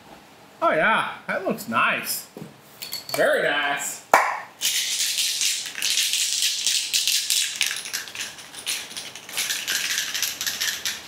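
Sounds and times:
aerosol can shaken with ball rattling: 0:04.6 - 0:11.0.

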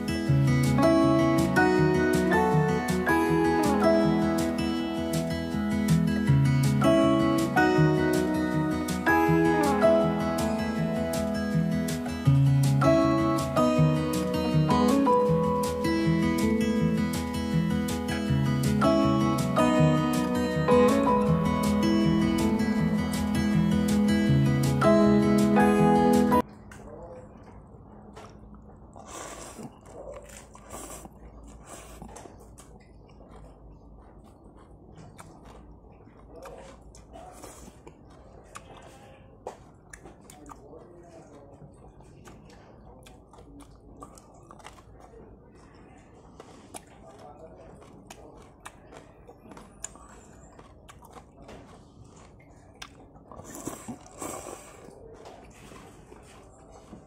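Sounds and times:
man slurping and chewing noodles: 0:00.0 - 0:57.0
slurping noodles: 0:28.8 - 0:33.5, 0:51.8 - 0:57.0.

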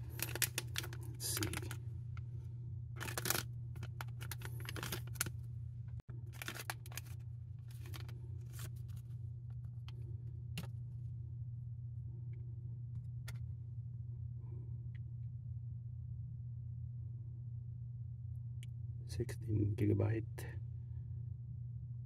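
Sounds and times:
plastic bag crinkling: 0:00.0 - 0:01.8, 0:03.0 - 0:05.4, 0:06.2 - 0:09.1
steady low hum: 0:00.0 - 0:22.0.

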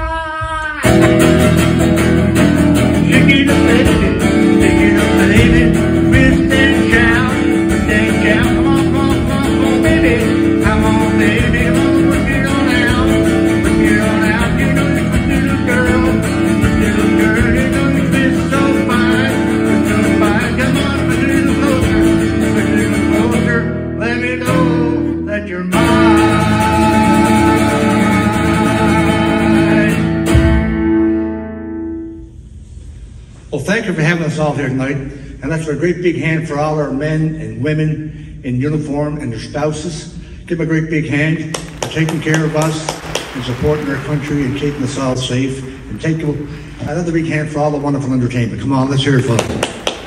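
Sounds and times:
man singing: 0:00.0 - 0:30.3
acoustic guitar strumming: 0:00.8 - 0:32.3, 0:41.5 - 0:50.0.

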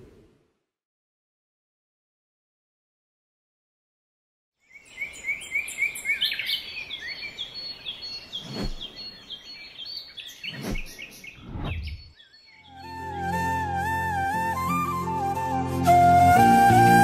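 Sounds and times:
birds chirping: 0:04.6 - 0:13.3.

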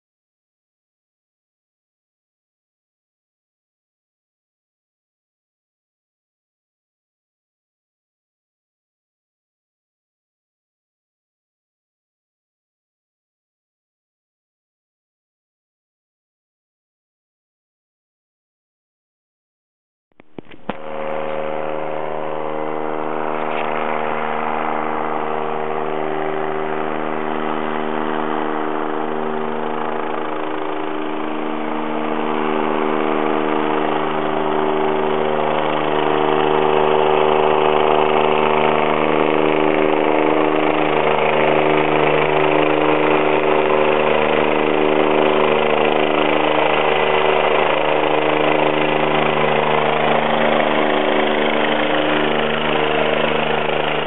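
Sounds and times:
helicopter engine and rotor drone: 0:20.3 - 0:54.0.

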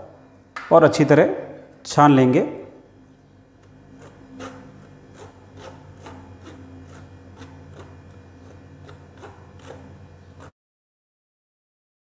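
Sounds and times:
steady low hum: 0:00.0 - 0:10.5
spoon scraping through mesh sieve: 0:03.9 - 0:10.5.

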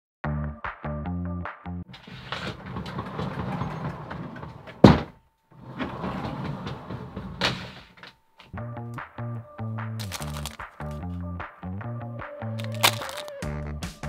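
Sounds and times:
sliding door rolling on track: 0:01.9 - 0:08.0
door banging against wall: 0:02.0 - 0:05.2.

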